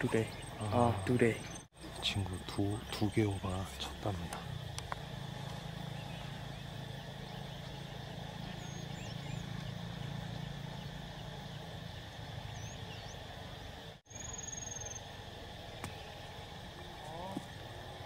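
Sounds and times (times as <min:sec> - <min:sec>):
outdoor hum and hiss: 0:00.0 - 0:18.0
faint bird chirps: 0:05.6 - 0:17.4.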